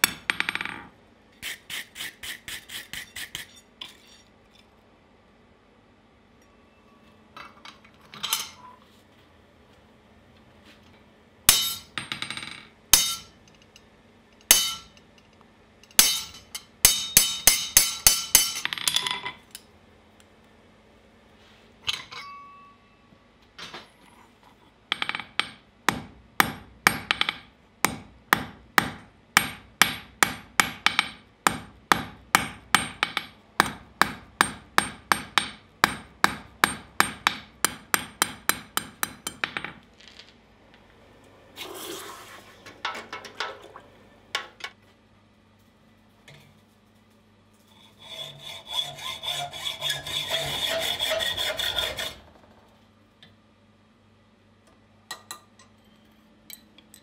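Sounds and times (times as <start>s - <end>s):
hammer striking steel on anvil: 0.0s - 0.9s, 11.5s - 13.4s, 14.4s - 15.0s, 15.9s - 19.3s, 21.9s - 23.0s, 24.9s - 39.8s.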